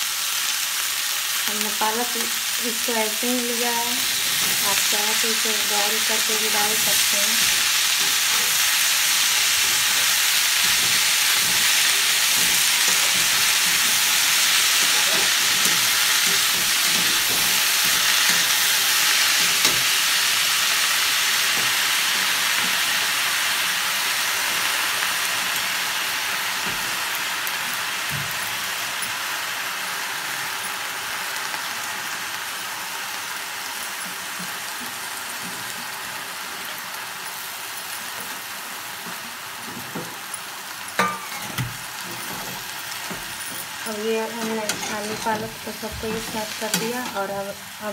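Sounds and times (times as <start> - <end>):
spinach sizzling in hot oil: 0.0 - 47.9
spatula knocking and scraping: 9.6 - 18.7.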